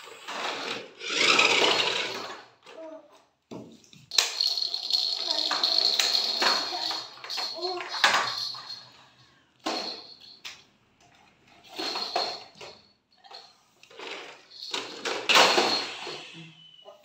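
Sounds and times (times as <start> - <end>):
plastic toys clattering on tiles: 0.1 - 9.0, 9.6 - 16.4.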